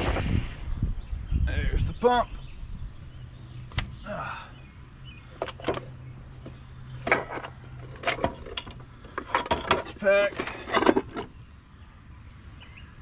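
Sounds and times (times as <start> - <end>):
metal parts clinking and knocking: 5.4 - 5.9, 7.0 - 11.4.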